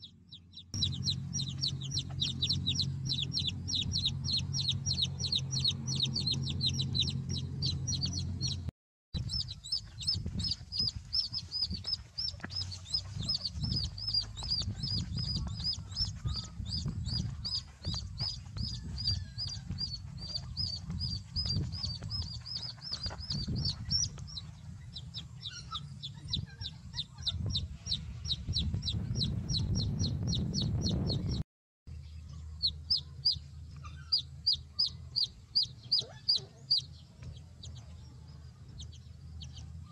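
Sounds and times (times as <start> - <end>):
chicks peeping: 0.0 - 31.4, 32.1 - 39.9
low rumble: 0.3 - 25.5.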